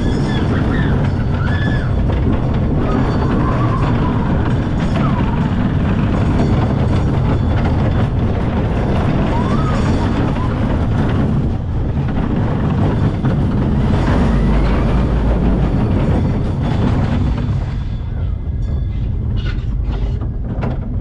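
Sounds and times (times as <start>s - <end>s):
roller coaster wheels rumbling: 0.0s - 21.0s.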